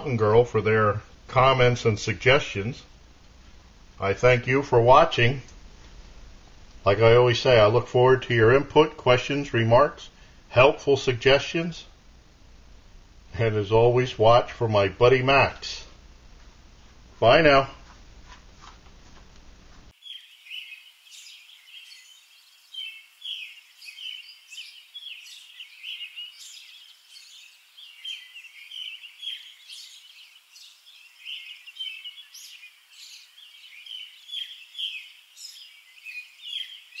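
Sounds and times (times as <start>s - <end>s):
birds chirping: 20.0s - 37.0s.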